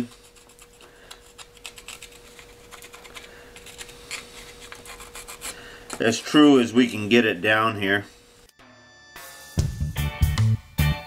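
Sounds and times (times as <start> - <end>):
pencil scratching on paper: 0.0 - 6.3
faint steady hum: 0.0 - 9.1.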